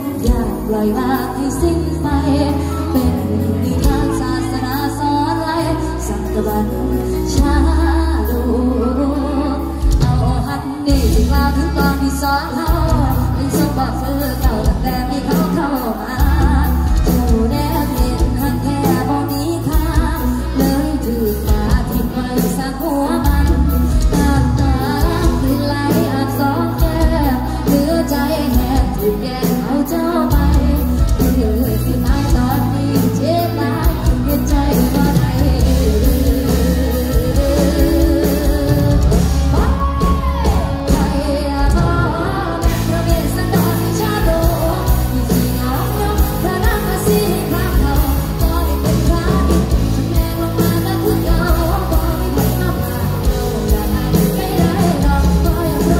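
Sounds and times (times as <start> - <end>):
live band music: 0.0 - 55.9
woman singing into microphone: 0.0 - 55.9
heavy bass line: 30.3 - 55.9.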